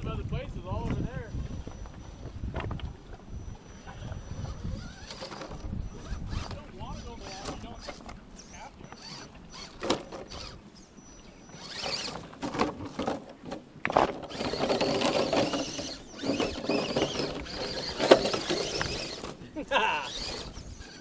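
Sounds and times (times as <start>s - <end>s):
tyres and chassis scraping rocks: 0.7s - 21.0s
electric motor whining: 1.2s - 12.7s, 14.1s - 21.0s
toy truck knocking on rocks: 13.9s - 19.2s.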